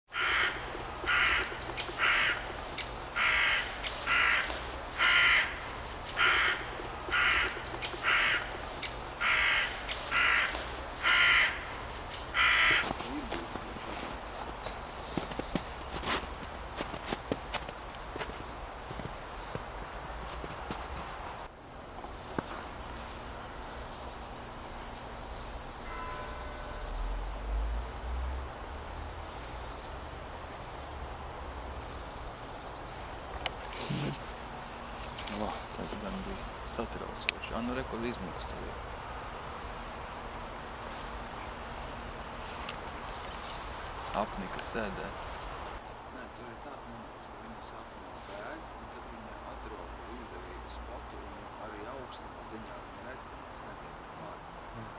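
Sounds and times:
crow cawing: 0.1 - 14.1
outdoor background hiss: 0.1 - 54.9.

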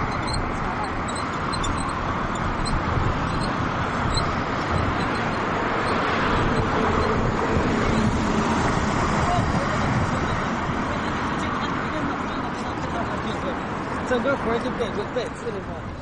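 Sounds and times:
cars passing close by: 0.0 - 16.0
road traffic noise: 0.0 - 16.0.

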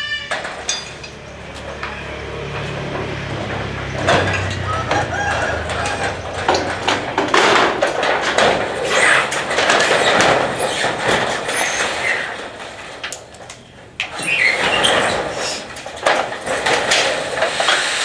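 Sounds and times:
metal roofing sheets scraping: 0.0 - 18.0
sharp knocks: 2.8 - 12.0.

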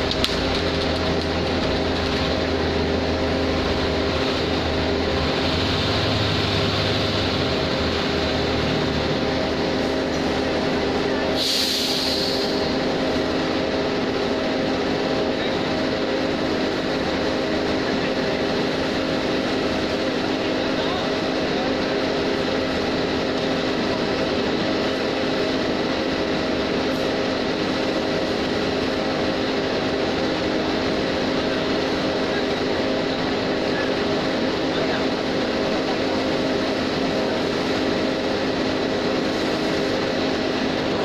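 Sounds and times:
diesel truck engine at low revs: 0.0 - 41.0
air hiss: 11.4 - 12.8.

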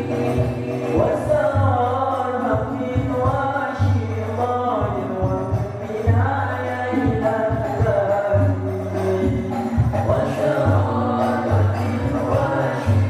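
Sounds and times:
boys singing together: 0.0 - 13.0
frame drums: 0.0 - 13.0.

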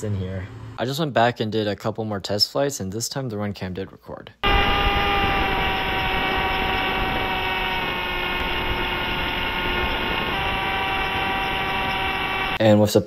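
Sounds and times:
electric motor propeller whine: 4.4 - 12.6.

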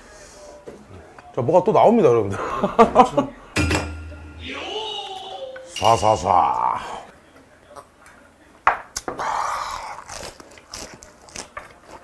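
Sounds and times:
man chewing food: 9.0 - 12.0.

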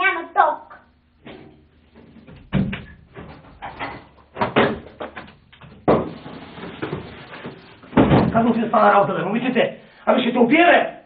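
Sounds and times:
knocks and thuds: 1.2 - 8.5.

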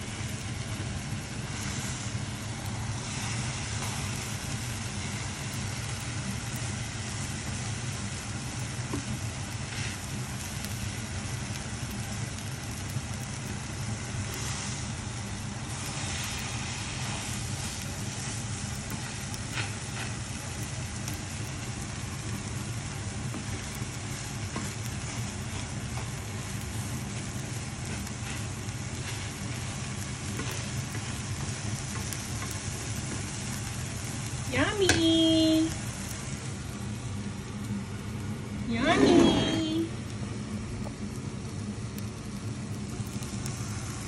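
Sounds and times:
food sizzling in a frying pan: 0.0 - 44.0
steady low hum: 0.0 - 44.0
spatula tapping and scraping: 27.8 - 33.4.

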